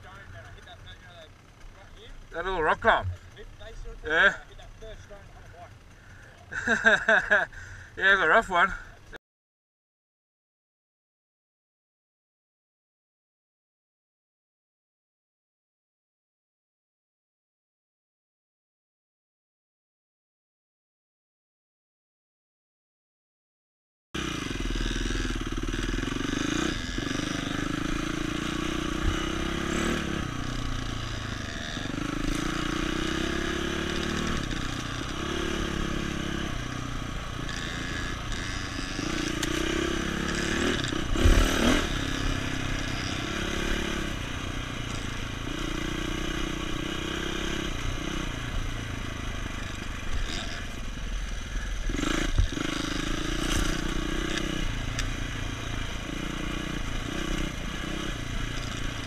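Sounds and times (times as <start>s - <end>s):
dirt bike engine revving: 0.0s - 8.9s, 24.2s - 59.0s.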